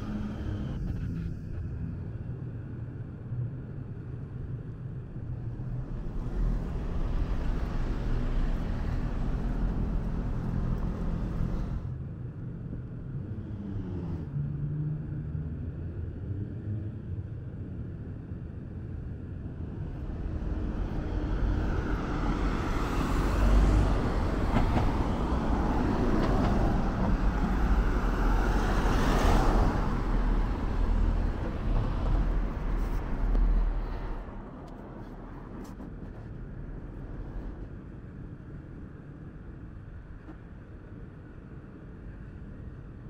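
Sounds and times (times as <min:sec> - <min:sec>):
traffic passing close: 0:00.0 - 0:01.1, 0:05.2 - 0:11.9, 0:19.1 - 0:43.0
deep engine rumble: 0:00.0 - 0:16.4, 0:17.0 - 0:43.0
city hum: 0:00.0 - 0:43.0.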